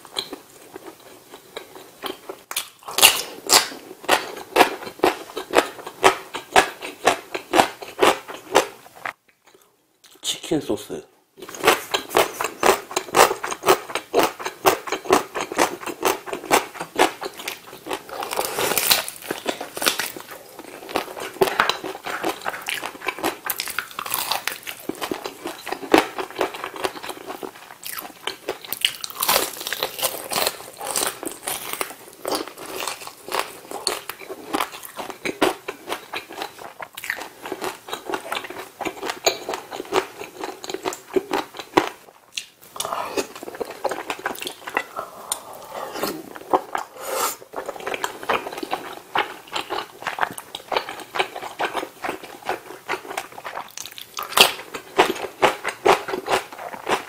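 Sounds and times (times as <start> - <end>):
chewing fried chicken crunches: 11.4 - 45.5, 47.6 - 57.0.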